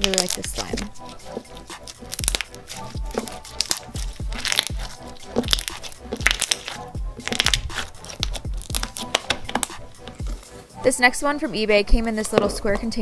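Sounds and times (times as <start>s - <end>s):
slime squishing and popping: 0.0s - 10.4s
music with kick-drum beat: 0.0s - 10.6s.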